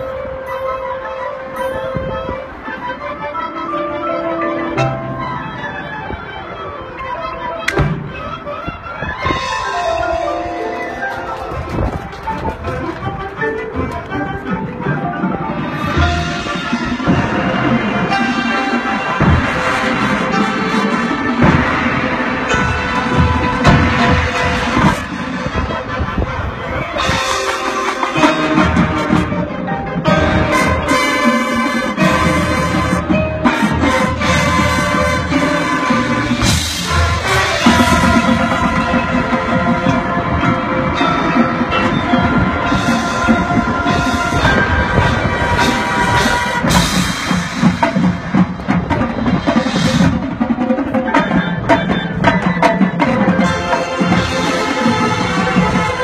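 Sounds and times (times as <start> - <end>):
marching band playing: 0.0 - 56.0
sustained wind chords: 0.0 - 56.0
pit percussion: 7.6 - 56.0.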